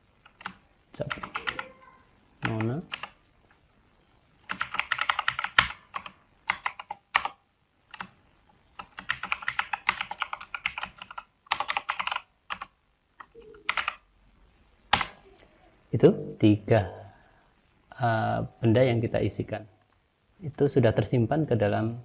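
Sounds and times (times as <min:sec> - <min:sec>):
loud keyboard clicks: 0:00.2 - 0:01.6, 0:02.4 - 0:03.2, 0:04.5 - 0:08.2, 0:08.8 - 0:14.0
typing on computer keyboard: 0:00.2 - 0:01.7, 0:02.4 - 0:03.2, 0:04.5 - 0:08.2, 0:08.8 - 0:14.0.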